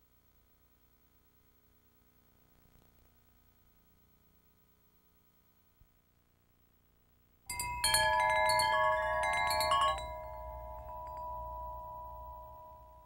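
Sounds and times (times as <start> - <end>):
bright chimes: 7.5 - 13.0.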